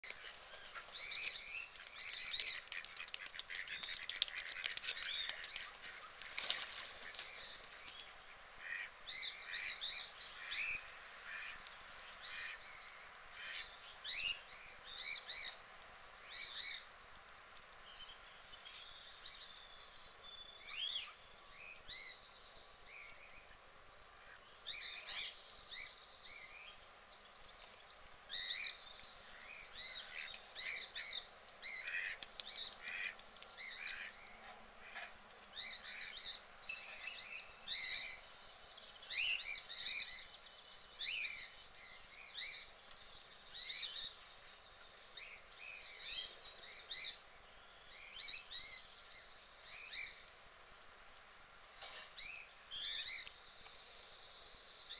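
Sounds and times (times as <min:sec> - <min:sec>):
small birds chirping: 0:00.0 - 0:54.9
rustling: 0:00.1 - 0:08.2.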